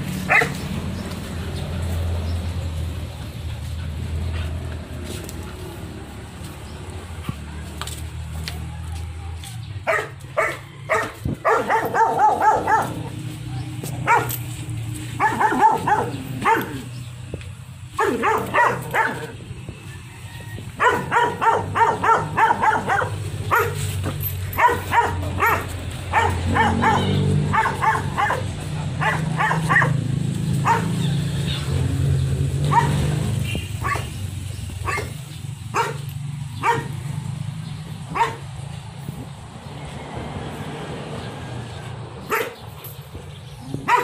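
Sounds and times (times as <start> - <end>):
dog barking in volleys: 0.2 - 0.7, 9.8 - 14.5, 15.1 - 17.0, 17.9 - 19.4, 20.8 - 34.2, 34.8 - 37.2, 38.1 - 38.6, 42.2 - 42.7, 43.7 - 44.0.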